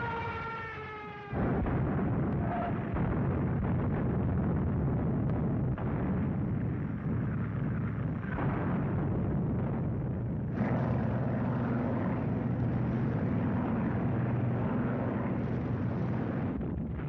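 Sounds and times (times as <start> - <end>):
vehicle engines droning: 0.0 - 3.7, 10.3 - 17.0.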